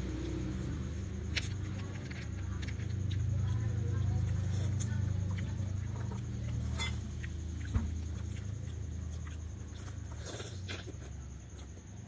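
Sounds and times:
steady low hum: 0.0s - 12.0s
eggshell clicks and crackles: 0.1s - 3.5s.

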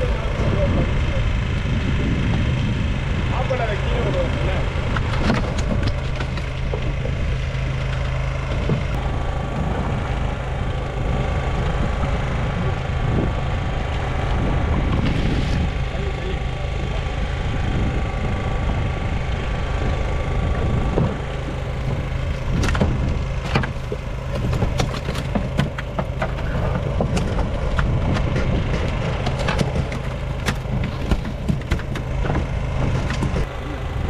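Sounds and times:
boat engine idling: 0.0s - 34.0s
sharp knocks and clicks: 20.9s - 33.5s.

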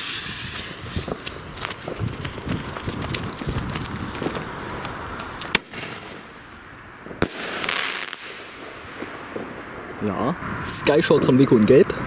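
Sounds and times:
firework fuse sputtering: 0.0s - 6.5s
firework bangs: 0.0s - 11.2s
firework crackling: 0.0s - 11.2s.

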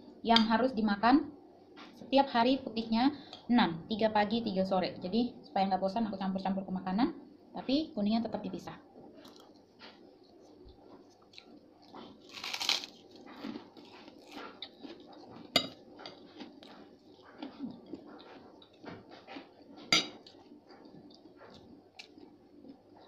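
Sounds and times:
chewing and crunching cracker: 9.1s - 23.0s
fork clinking on plate: 15.6s - 16.2s, 19.9s - 20.2s.

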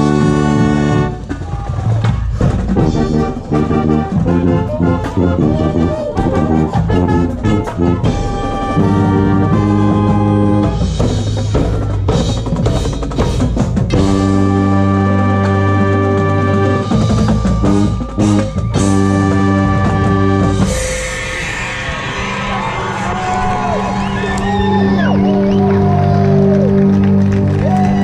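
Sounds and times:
tuba close to microphone: 0.0s - 1.4s, 2.6s - 12.7s, 13.8s - 21.3s
marching band playing: 0.0s - 28.0s
cymbal crashes: 20.6s - 22.5s.

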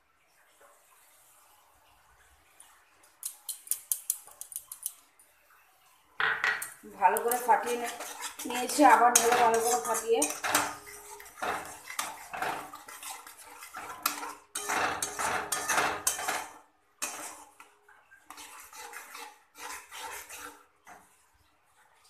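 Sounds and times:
metal spatula scraping metal pan: 7.1s - 21.2s.

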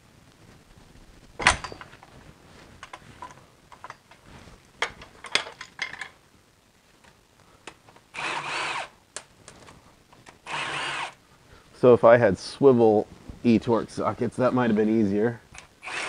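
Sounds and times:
cordless electric ratchet: 8.2s - 8.9s, 10.4s - 11.2s, 15.6s - 16.0s.

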